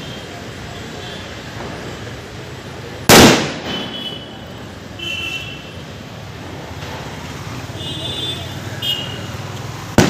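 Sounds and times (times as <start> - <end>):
firecracker bang: 3.1 - 4.3.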